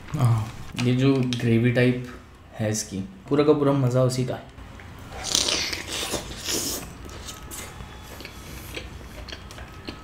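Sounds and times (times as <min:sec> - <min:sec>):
quiet chewing with mouth clicks: 0:04.8 - 0:10.0.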